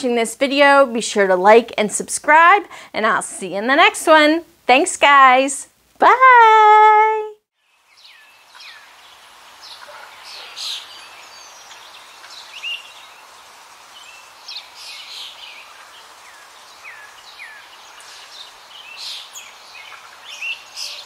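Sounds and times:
steady outdoor hiss: 0.0s - 7.0s, 7.6s - 21.0s
songbirds chirping: 7.6s - 21.0s.

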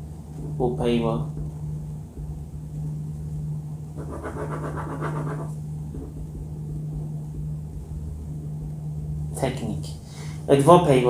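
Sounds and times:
low rumble: 0.0s - 11.0s
steady low hum: 0.0s - 11.0s
pen scratching on paper: 4.0s - 6.2s.

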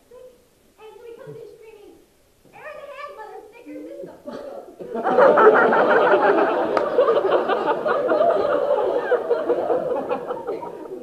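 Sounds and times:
audience laughing loudly: 4.3s - 11.0s.

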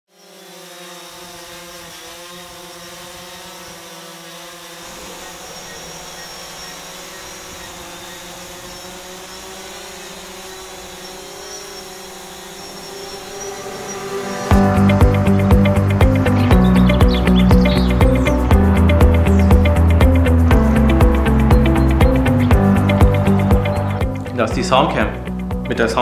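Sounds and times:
aircraft buzzing hum: 0.1s - 26.0s.

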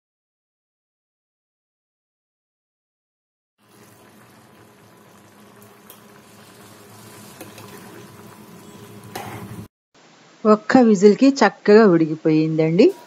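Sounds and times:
curry bubbling in a pot: 3.6s - 9.7s
spoon stirring curry: 5.7s - 9.6s.

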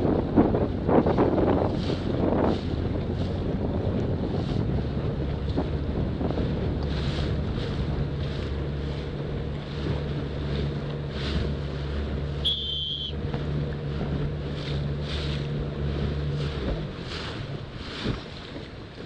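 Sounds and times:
wind buffeting microphone: 0.0s - 12.4s
choppy water splashing: 0.0s - 19.0s
low motor hum: 0.0s - 19.0s
short high beep: 12.4s - 13.1s.

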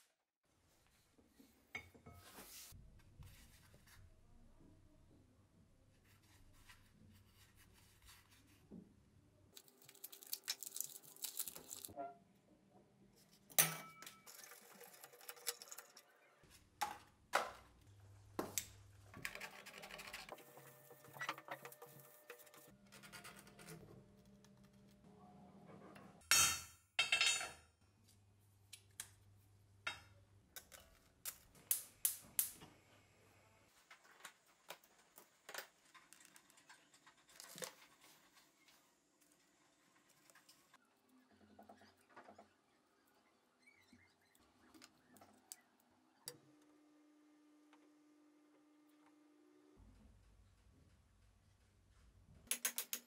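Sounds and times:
paper and card rustling: 9.6s - 12.0s, 19.2s - 23.8s.

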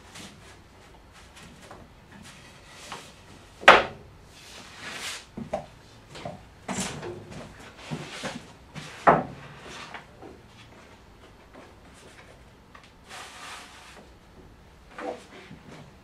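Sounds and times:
wood scraping slides: 6.7s - 10.1s, 13.0s - 14.1s.

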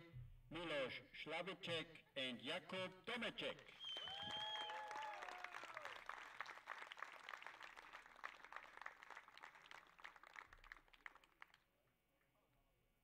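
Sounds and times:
audience applauding: 3.7s - 11.6s.

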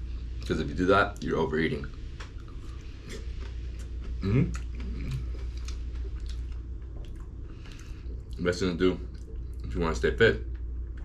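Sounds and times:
person chewing food: 1.9s - 8.4s.

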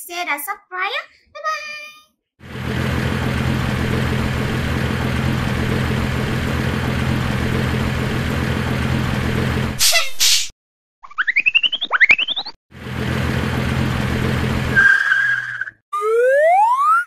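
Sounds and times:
engine idling: 2.4s - 9.8s, 12.8s - 14.9s.

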